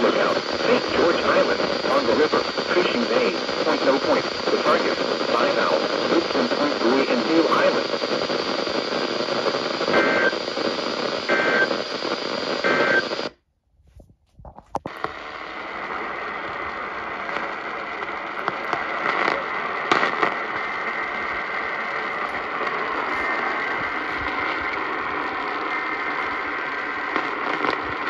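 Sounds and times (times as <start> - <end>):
radio hiss: 0.0 - 13.3, 14.7 - 28.0
radio static crackles: 0.0 - 13.4, 14.4 - 28.0.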